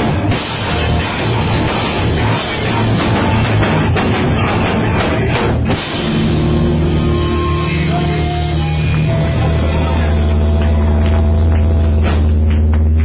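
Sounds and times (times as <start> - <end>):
bass guitar: 0.0 - 13.0
distorted electric guitars: 0.0 - 13.0
drum kit: 0.0 - 13.0.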